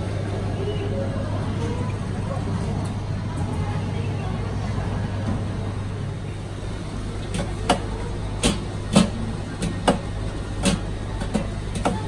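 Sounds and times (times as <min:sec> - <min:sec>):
steady low hum: 0:00.0 - 0:12.0
ice cream scoop clicking on tubs: 0:07.3 - 0:12.0.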